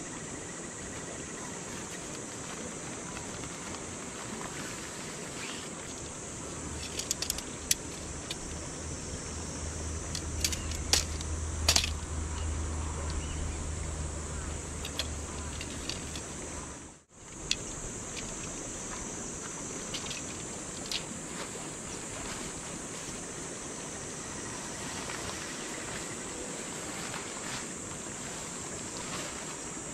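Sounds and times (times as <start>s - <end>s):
high insect buzz: 0.0s - 29.9s
low hum: 6.2s - 20.6s
metal poles clinking: 6.7s - 8.6s, 10.0s - 13.3s, 14.4s - 16.5s.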